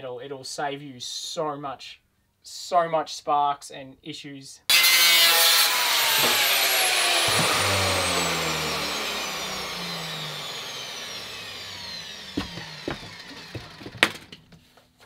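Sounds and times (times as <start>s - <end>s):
angle grinder winding down: 4.7s - 14.4s.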